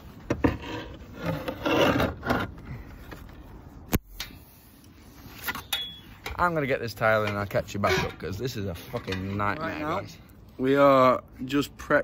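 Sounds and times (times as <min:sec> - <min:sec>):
hard surfaces scraping: 0:00.0 - 0:02.6.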